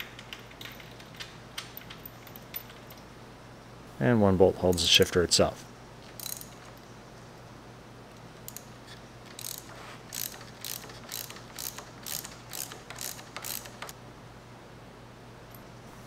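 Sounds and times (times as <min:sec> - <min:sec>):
ratchet wrench clicking: 0:06.2 - 0:06.6, 0:09.3 - 0:13.9.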